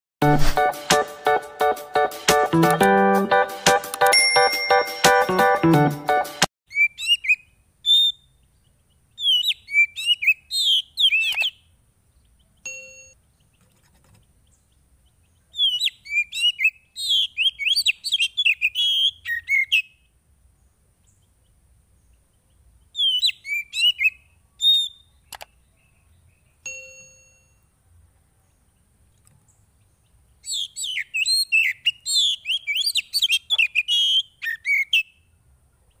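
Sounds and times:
sharp click: 0:03.9 - 0:04.2, 0:25.3 - 0:25.5
bird singing whistles and chirps: 0:06.7 - 0:08.4, 0:09.2 - 0:11.6, 0:15.5 - 0:20.0, 0:22.9 - 0:26.0, 0:30.4 - 0:35.2.

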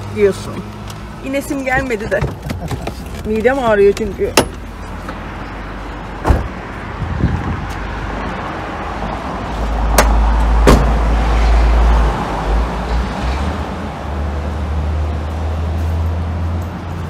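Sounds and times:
car interior rumble: 0:00.0 - 0:07.8
car door opening and shutting: 0:06.2 - 0:06.6, 0:09.9 - 0:11.1.

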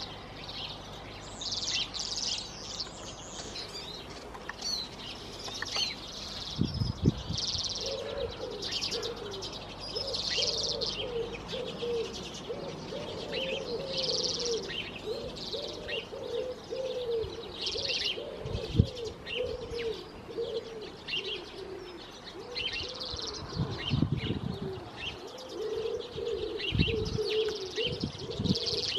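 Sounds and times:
pigeon cooing: 0:07.7 - 0:28.9.

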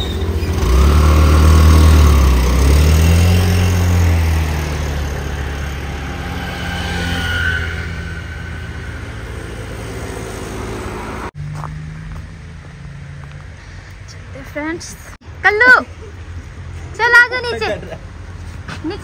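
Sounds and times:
vehicle engine accelerating: 0:00.0 - 0:14.1.

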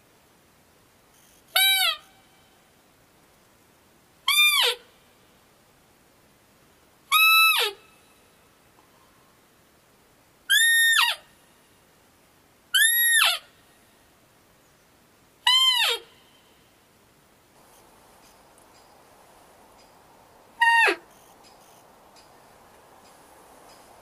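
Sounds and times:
deer call piping notes: 0:01.5 - 0:02.6, 0:04.3 - 0:04.9, 0:07.1 - 0:08.0, 0:12.8 - 0:13.5, 0:15.4 - 0:16.5, 0:20.6 - 0:22.3.

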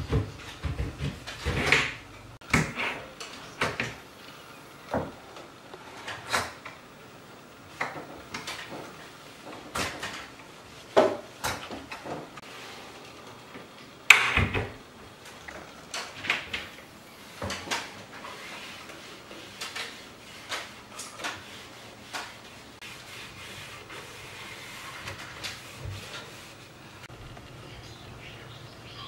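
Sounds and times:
cabinet door knocks and clicks: 0:14.1 - 0:14.8.

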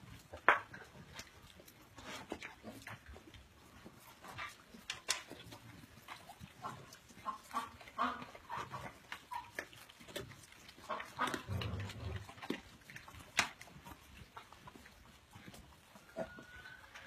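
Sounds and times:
animals chewing noisily: 0:00.0 - 0:17.0.

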